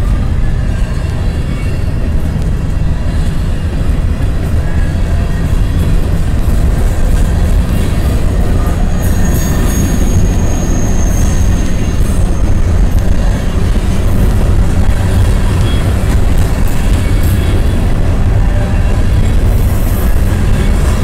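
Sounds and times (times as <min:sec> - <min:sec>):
train wheels rumbling on rails: 0:00.0 - 0:21.0
high wheel squeal: 0:02.7 - 0:17.9.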